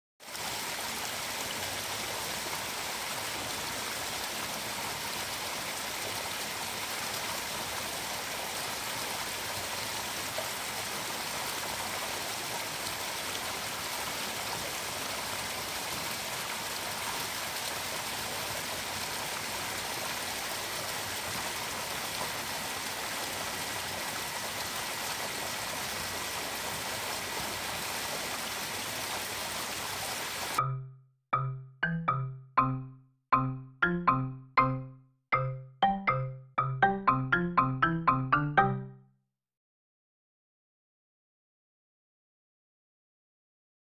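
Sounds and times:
rush of running water: 0.2s - 30.7s.

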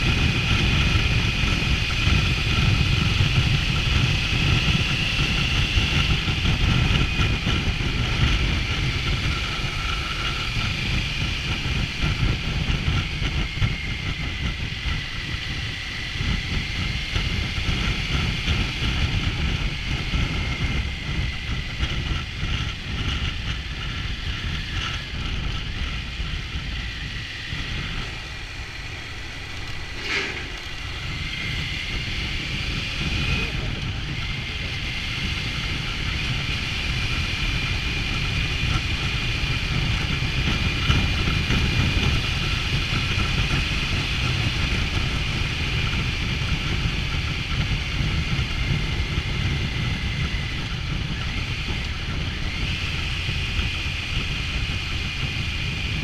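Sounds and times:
motorcycle engine running: 0.0s - 56.0s
wind rush on microphone: 0.0s - 56.0s.

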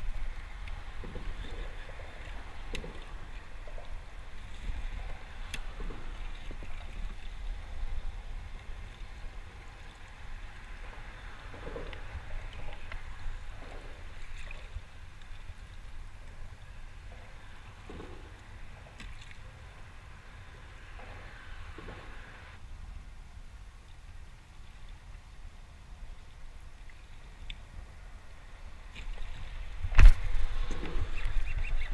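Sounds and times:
water sloshing against kayak hull: 0.0s - 19.9s
wind rumbling on microphone: 0.0s - 31.9s.

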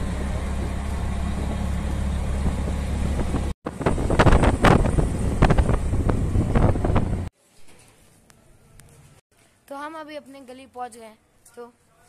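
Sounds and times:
engine and road hum: 0.0s - 7.3s
wind buffeting microphone: 0.0s - 7.3s.

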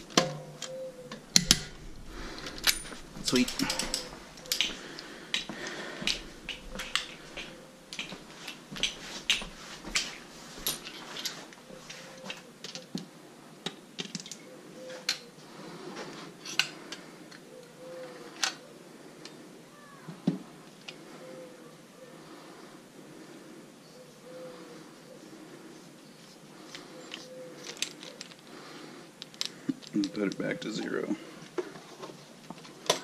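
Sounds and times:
metallic clinks of hand tools: 2.5s - 4.7s.

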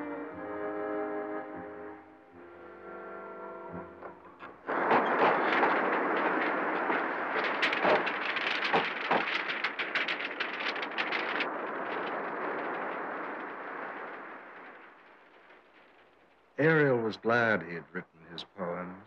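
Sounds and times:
wind blowing: 3.7s - 18.8s
book pages flapping: 4.4s - 15.9s.

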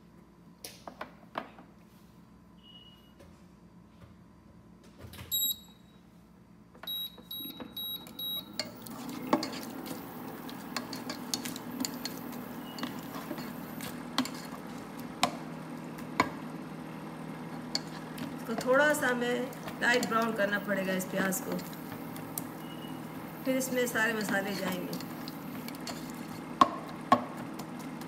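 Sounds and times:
cooktop touch control beeps: 5.3s - 5.9s, 6.8s - 8.8s, 12.5s - 13.0s, 22.6s - 23.1s.

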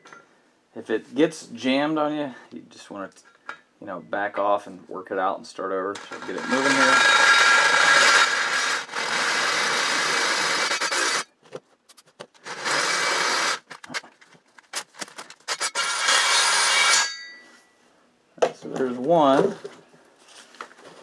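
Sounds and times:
cordless drill drilling steel: 6.0s - 11.3s, 12.5s - 13.7s, 15.5s - 17.0s
drill bit clicking and scraping metal: 6.0s - 11.3s.

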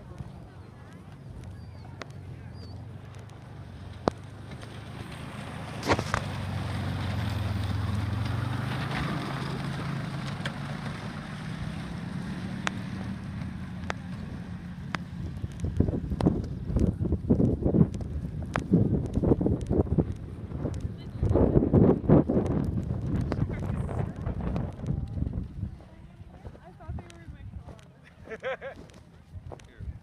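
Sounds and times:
engine humming: 0.0s - 30.0s
sharp clicks: 0.9s - 4.8s, 14.8s - 21.5s.

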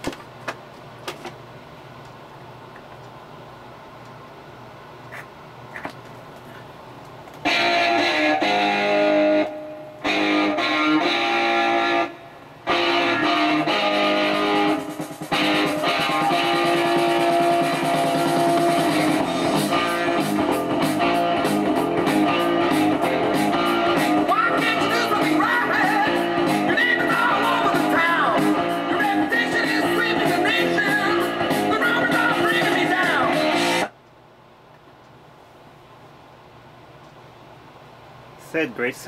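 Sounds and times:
guitar music from record player: 7.4s - 34.0s.

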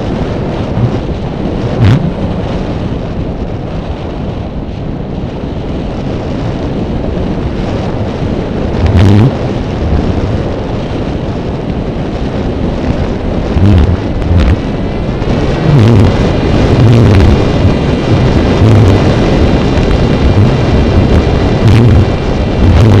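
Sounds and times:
high motor whine: 0.0s - 3.5s, 8.7s - 10.8s, 12.1s - 23.0s
wind buffeting microphone: 0.0s - 23.0s.

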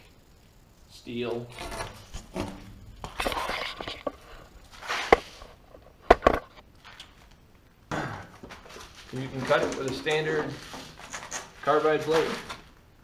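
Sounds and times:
sheet rustling and scraping: 1.5s - 5.8s, 8.5s - 12.7s.

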